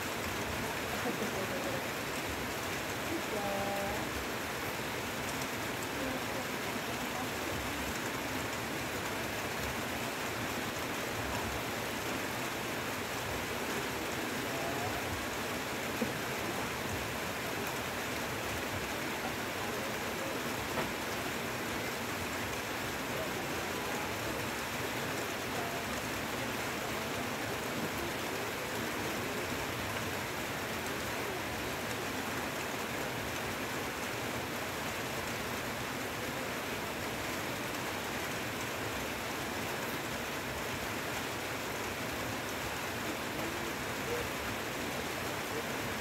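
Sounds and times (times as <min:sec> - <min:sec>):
heavy rain on leaves: 0:00.0 - 0:46.0.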